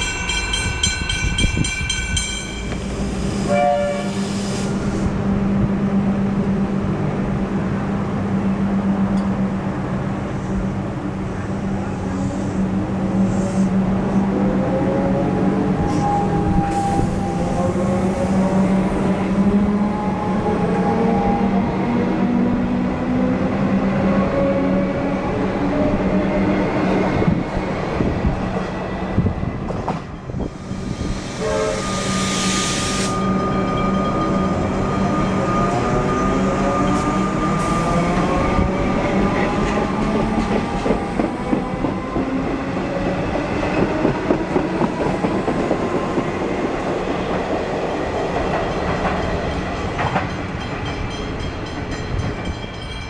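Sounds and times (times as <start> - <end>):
loud hiss: 2.8 - 5.1, 30.6 - 33.2
train wheels clattering on rails: 38.7 - 53.0.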